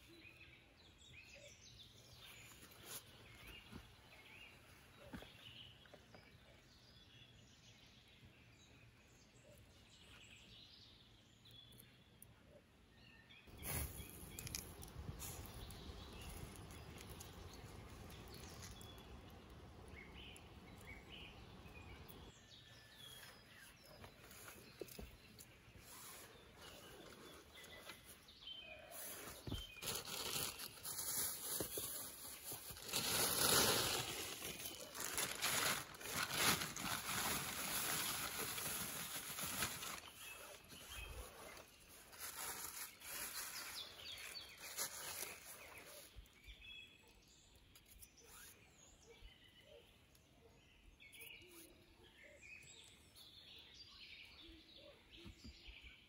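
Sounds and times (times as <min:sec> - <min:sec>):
birds chirping faintly: 0:00.0 - 0:56.0.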